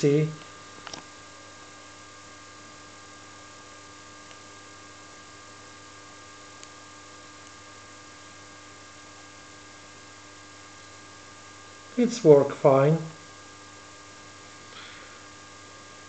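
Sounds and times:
electrical hum: 0:00.0 - 0:16.0
background hiss: 0:11.9 - 0:13.2.

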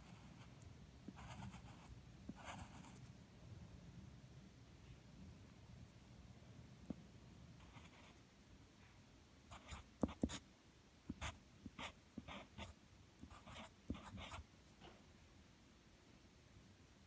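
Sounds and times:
pencil scratching on paper: 0:01.1 - 0:03.0, 0:09.5 - 0:10.4, 0:11.1 - 0:14.4.

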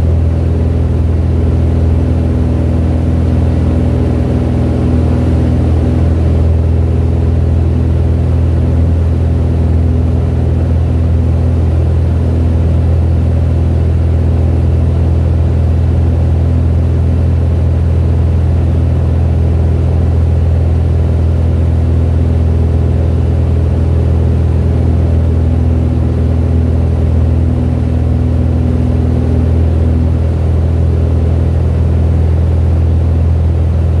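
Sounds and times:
aircraft engine and propeller droning: 0:00.0 - 0:34.0.

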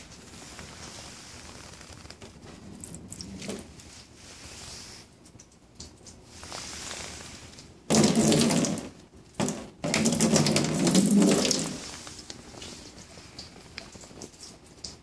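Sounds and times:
water splashing on car hood: 0:07.9 - 0:12.0.

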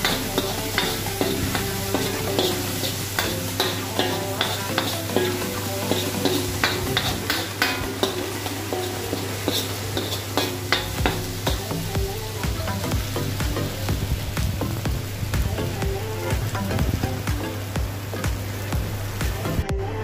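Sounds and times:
ladle scraping a wok: 0:00.0 - 0:11.7
food sizzling in a wok: 0:00.0 - 0:19.6.

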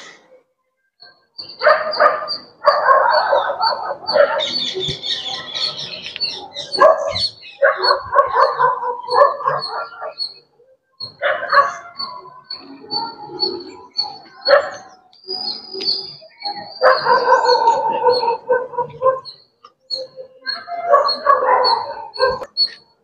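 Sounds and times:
dog barking: 0:01.6 - 0:04.6, 0:06.6 - 0:10.4, 0:11.1 - 0:12.4, 0:14.4 - 0:14.9, 0:16.7 - 0:19.4, 0:20.5 - 0:22.5.

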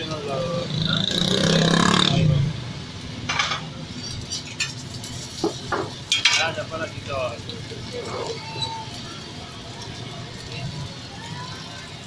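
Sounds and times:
street traffic noise: 0:00.0 - 0:12.0
metal spatula scraping griddle: 0:03.3 - 0:06.6.

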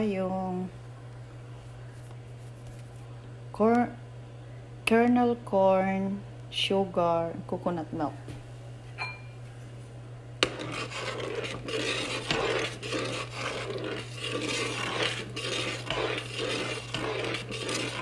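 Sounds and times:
spoon scraping metal saucepan: 0:10.4 - 0:18.0.

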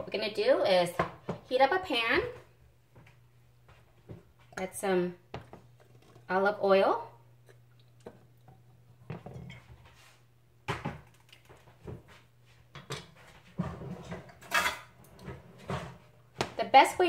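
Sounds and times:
kitchen items clattering: 0:12.7 - 0:17.0.

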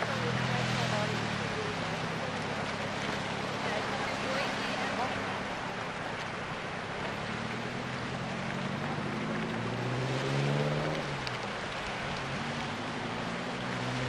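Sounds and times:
boat engine idling: 0:00.0 - 0:09.8
surf hissing: 0:00.0 - 0:14.0.

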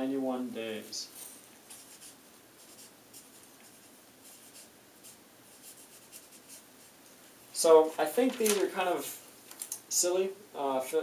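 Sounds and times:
marker pen scratching paper: 0:01.7 - 0:06.9.

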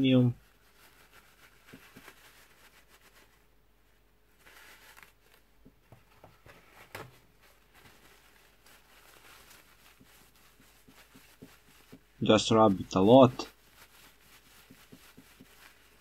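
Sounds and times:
paper towel rubbing metal: 0:00.0 - 0:03.5, 0:07.3 - 0:16.0.

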